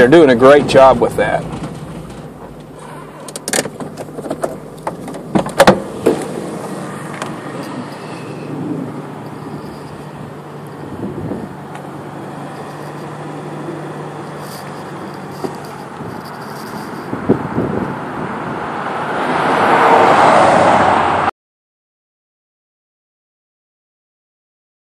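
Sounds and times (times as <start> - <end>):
car engine hum: 0.0 - 21.3
sharp knocks and rattles: 3.4 - 6.3.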